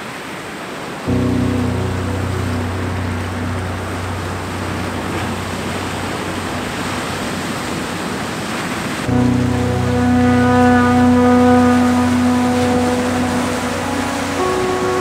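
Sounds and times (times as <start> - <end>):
droning tone: 1.1 - 7.4, 9.1 - 15.0
waves breaking on rocks: 4.0 - 9.1.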